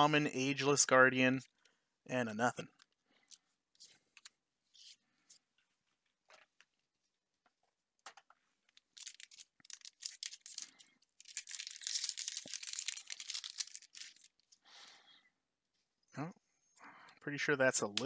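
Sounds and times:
foil wrapper crinkling and tearing: 8.7 - 14.5.

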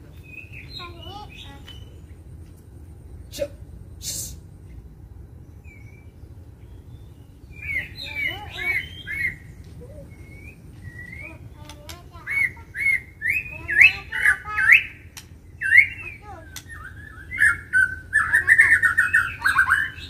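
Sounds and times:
bird singing whistled phrases: 6.9 - 20.0.

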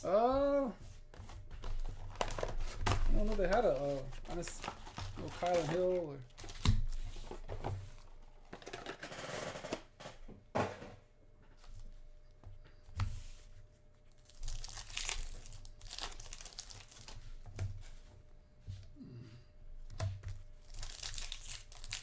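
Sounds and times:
foil packs crinkling: 1.6 - 7.2, 14.1 - 17.2, 20.6 - 22.0.

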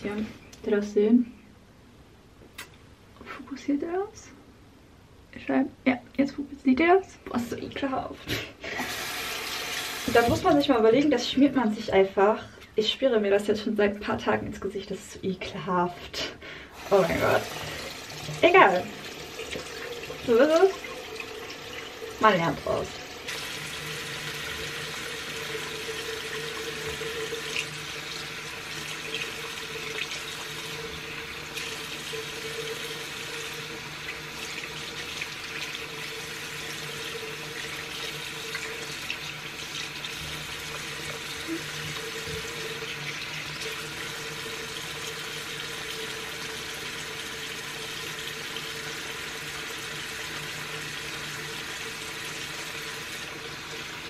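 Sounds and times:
sink tap running: 8.7 - 11.0, 16.8 - 54.0.

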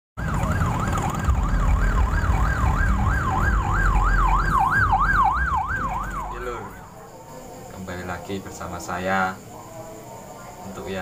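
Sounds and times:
warbling siren: 0.2 - 6.9.

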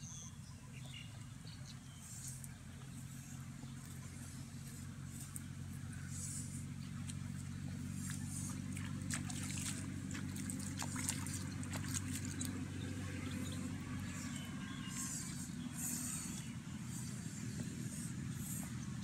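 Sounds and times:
steady low hum: 0.0 - 19.0
water splashing and trickling: 7.0 - 16.5.

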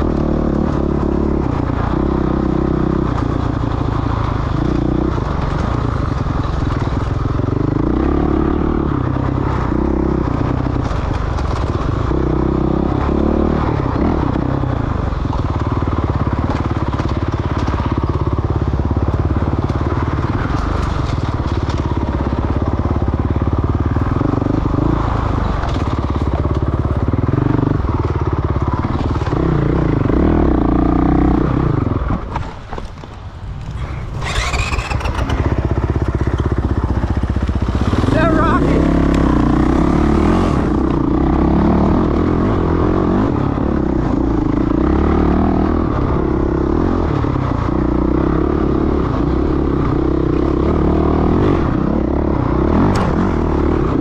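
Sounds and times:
dirt bike engine revving: 33.6 - 54.0.

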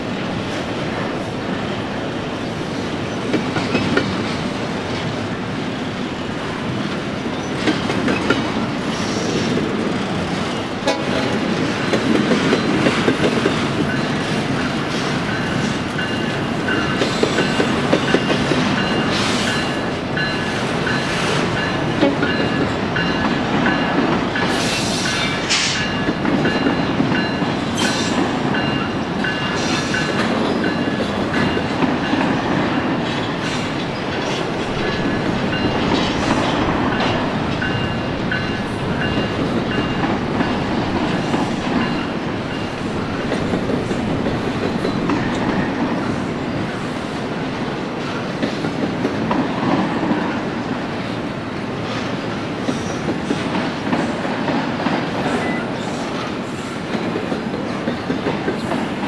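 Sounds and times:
freight train rumbling past: 0.0 - 59.0
wheel clatter over rail joints: 6.7 - 50.6.

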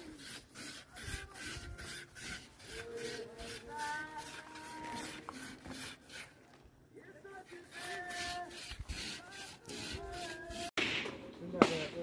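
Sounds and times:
grating on metal grater: 0.0 - 6.3, 7.5 - 10.7.

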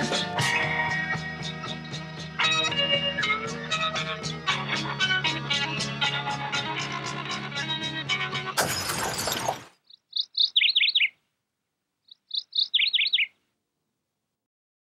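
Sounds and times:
songbird singing: 0.0 - 5.3, 9.8 - 11.2, 12.0 - 13.4.

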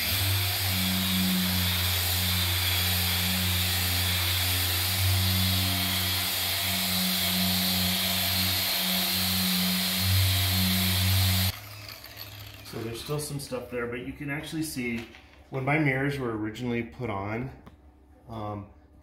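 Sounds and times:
orbital sander running: 0.0 - 13.1.

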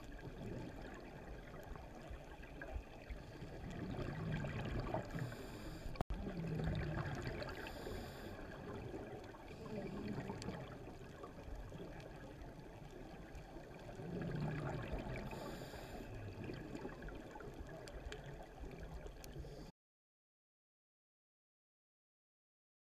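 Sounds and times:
diver exhaling bubbles underwater: 3.4 - 11.4, 13.7 - 17.4.

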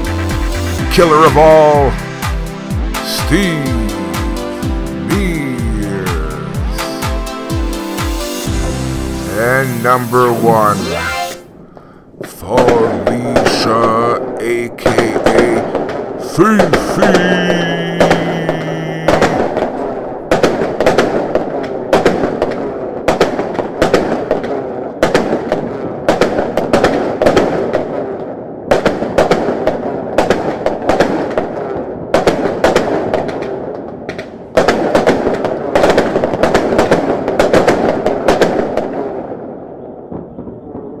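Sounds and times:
fireworks crackling and popping: 9.3 - 11.4, 12.2 - 39.2.

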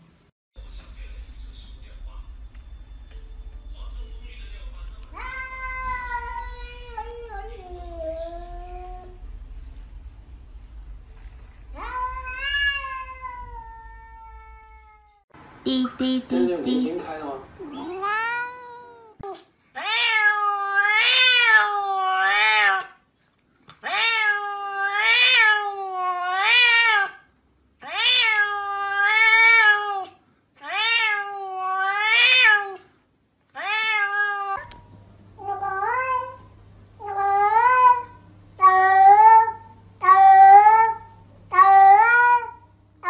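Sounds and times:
cat meowing long calls: 11.7 - 15.2.

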